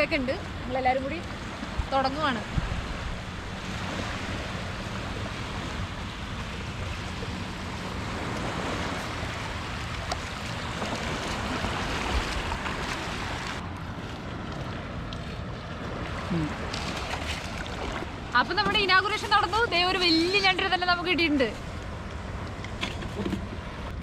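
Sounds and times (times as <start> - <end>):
shallow seawater rushing: 0.0 - 18.5
wind: 0.0 - 24.0.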